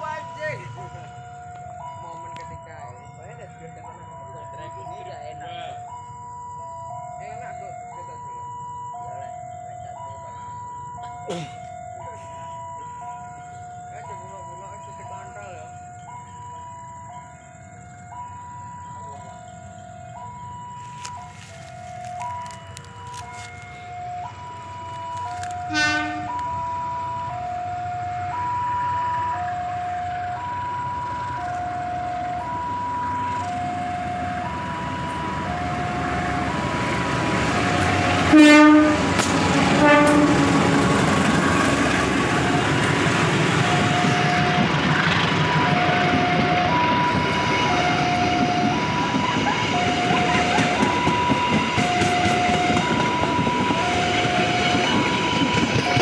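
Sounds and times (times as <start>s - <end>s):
diesel locomotive engine: 0.0s - 56.0s
level crossing alarm chimes: 0.0s - 56.0s
train wheels rolling on rails: 19.3s - 56.0s
locomotive horn: 20.8s - 27.7s, 32.1s - 56.0s.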